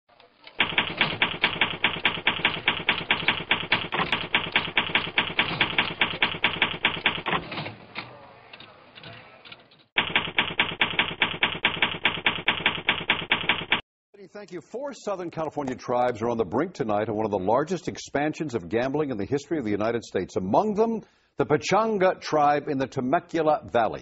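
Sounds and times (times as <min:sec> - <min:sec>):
typewriter keys clacking: 0:00.4 - 0:08.1, 0:09.0 - 0:13.8.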